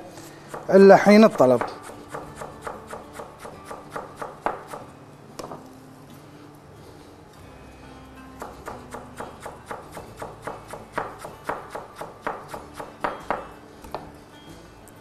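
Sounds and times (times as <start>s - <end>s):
knife chopping on cutting board: 0.5s - 4.8s, 8.4s - 14.0s.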